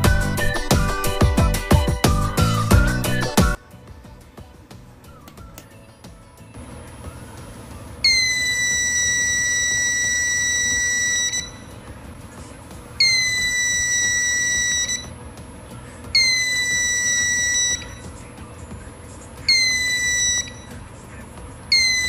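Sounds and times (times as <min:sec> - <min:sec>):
piezo buzzer high-pitched tone: 0:08.0 - 0:11.8, 0:13.0 - 0:15.2, 0:16.0 - 0:18.2, 0:19.4 - 0:20.9, 0:21.7 - 0:22.0.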